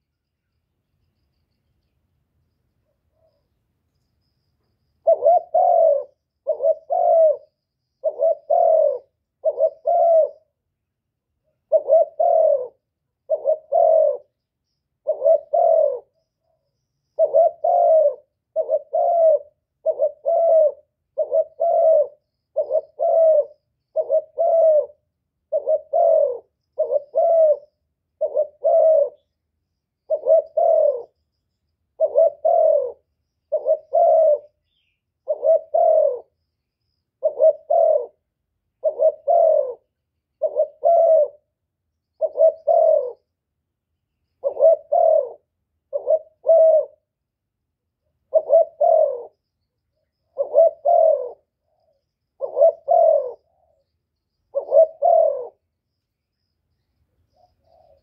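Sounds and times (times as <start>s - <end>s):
dove cooing: 5.0s - 10.6s, 11.4s - 14.4s, 15.0s - 16.6s, 17.2s - 29.4s, 30.1s - 31.2s, 32.0s - 36.4s, 37.2s - 41.6s, 42.2s - 43.3s, 44.4s - 47.2s, 48.2s - 49.4s, 50.1s - 53.9s, 54.5s - 55.6s, 57.3s - 58.0s.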